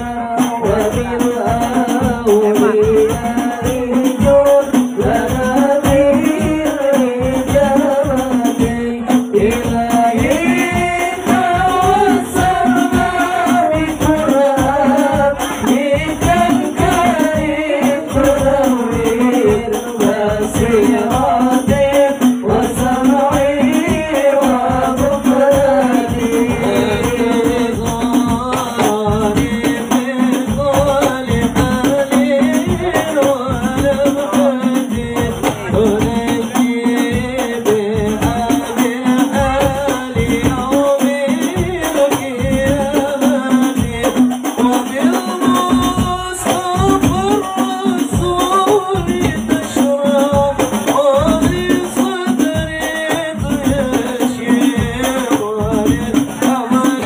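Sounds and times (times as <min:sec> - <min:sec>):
frame drums beating fast rhythm: 0:00.0 - 0:57.0
person singing devotional melody: 0:00.0 - 0:57.0.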